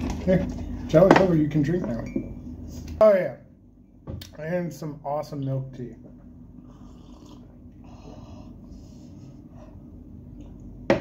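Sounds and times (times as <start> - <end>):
people sipping and slurping: 6.6 - 8.5
noisy nose breathing: 6.6 - 9.9.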